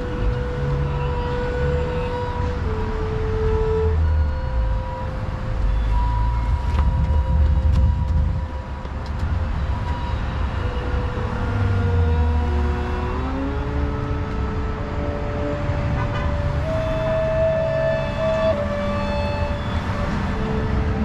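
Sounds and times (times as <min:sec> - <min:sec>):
violin playing sliding notes: 0:00.0 - 0:06.1, 0:10.6 - 0:21.0
street traffic rumble: 0:00.0 - 0:21.0.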